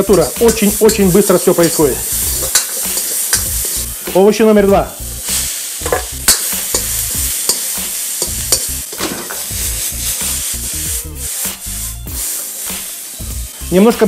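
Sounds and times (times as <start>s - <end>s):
vegetables sizzling in wok: 0.0s - 14.0s
metal ladle clacking on wok: 2.4s - 3.7s, 5.8s - 9.5s.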